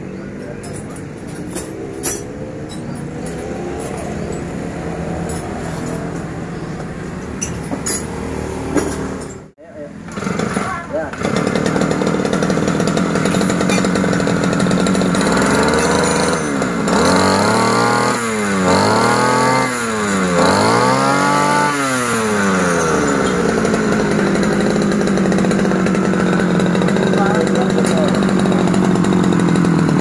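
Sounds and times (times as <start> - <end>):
brush cutter engine revving: 1.0 - 7.0, 9.8 - 30.0.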